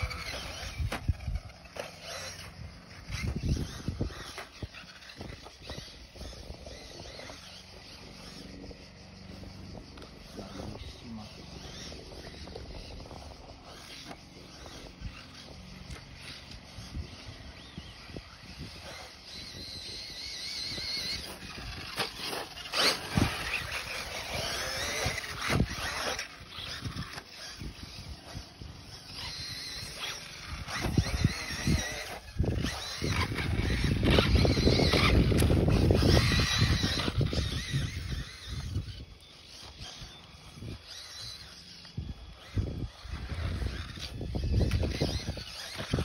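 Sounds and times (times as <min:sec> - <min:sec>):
toy buggy motor whining: 0:00.0 - 0:46.0.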